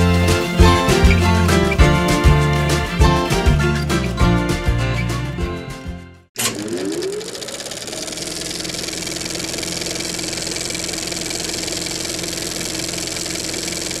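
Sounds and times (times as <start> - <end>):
motor running with fast clatter: 6.4 - 14.0
rising motor whine: 6.4 - 14.0.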